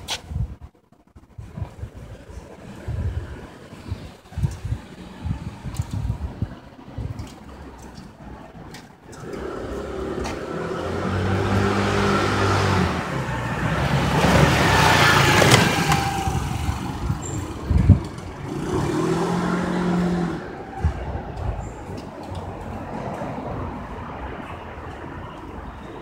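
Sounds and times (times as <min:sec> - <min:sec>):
vehicle driving past: 0:09.2 - 0:20.9.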